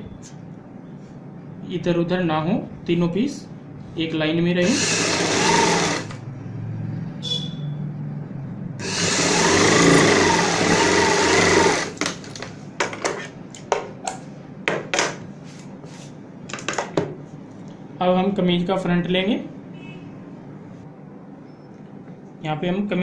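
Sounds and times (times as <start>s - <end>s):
sewing machine stitching: 4.6s - 6.2s, 8.8s - 12.0s.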